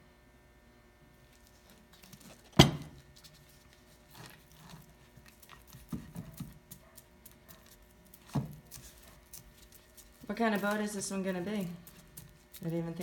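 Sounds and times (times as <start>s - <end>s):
knock on workbench: 2.6s - 2.9s
foam brush scrubbing wood: 8.1s - 13.0s.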